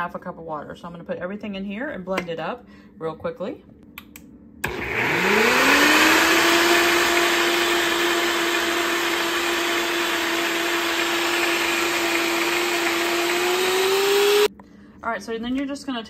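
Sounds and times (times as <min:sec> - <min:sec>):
blender motor running: 0:04.6 - 0:14.5.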